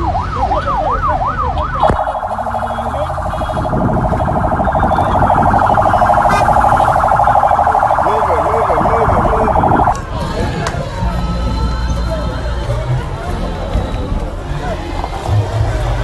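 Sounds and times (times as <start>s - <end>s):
electronic siren wailing: 0.0s - 10.0s
siren fast warble: 0.8s - 10.0s
siren switch click: 1.8s - 2.8s.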